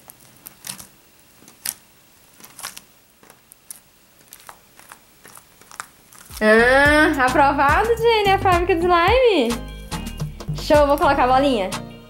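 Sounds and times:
slime squelching: 0.0 - 7.8.

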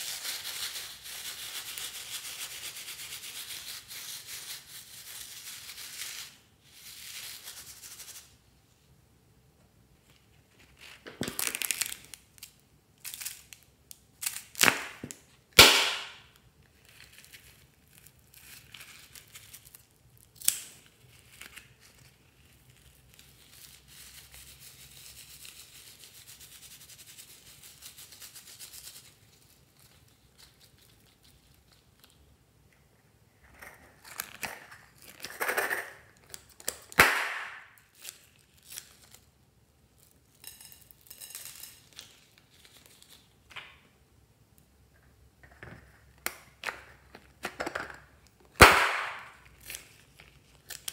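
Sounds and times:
hands rubbing mesh ball: 0.0 - 8.4.

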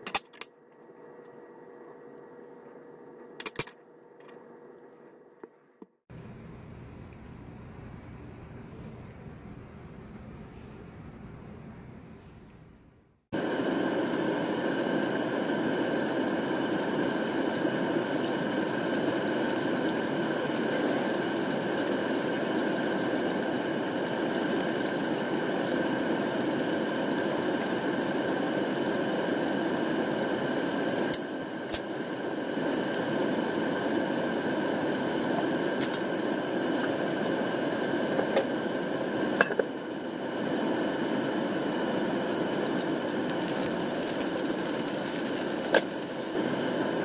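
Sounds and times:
food deep-frying in hot oil: 13.6 - 47.0.

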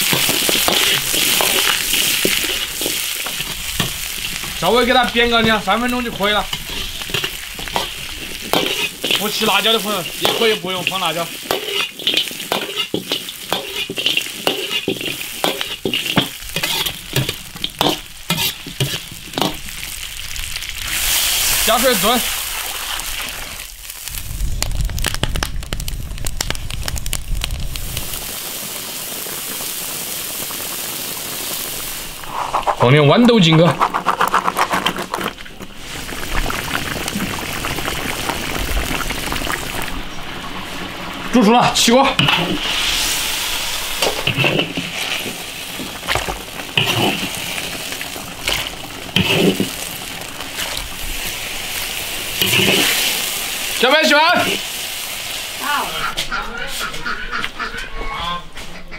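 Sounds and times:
wood fire crackling and popping: 0.0 - 56.4
stew simmering hiss: 0.0 - 58.0
low rumble: 24.0 - 28.2.

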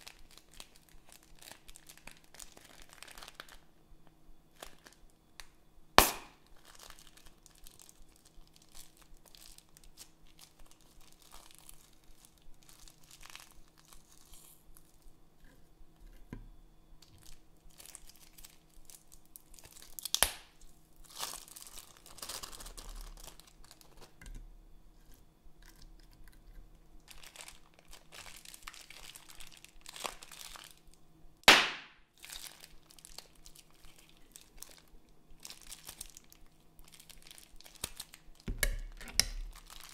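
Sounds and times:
slime bags crinkling and squelching: 0.0 - 3.7, 4.5 - 5.1, 6.0 - 15.0, 17.0 - 24.2, 25.6 - 39.9
plastic tearing cracks: 17.1 - 20.6, 35.4 - 39.9.

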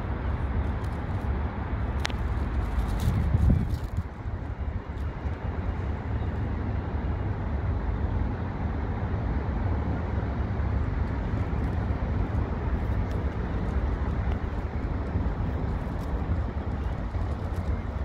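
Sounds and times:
diesel train rumbling: 0.0 - 18.0.

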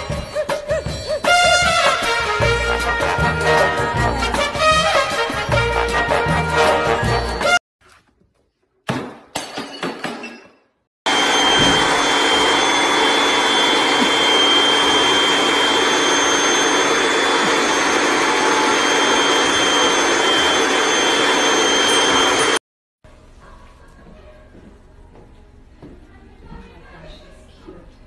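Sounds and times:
vacuum cleaner running: 11.1 - 22.6.

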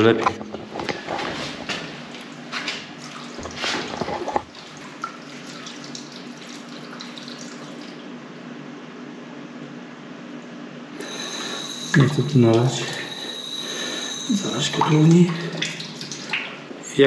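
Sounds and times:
water running from tap: 2.9 - 8.1, 11.0 - 16.7.

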